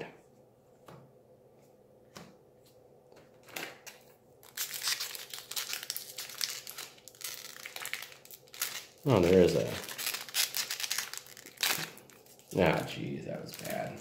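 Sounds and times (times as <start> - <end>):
foil wrapper crinkling: 4.4 - 14.0.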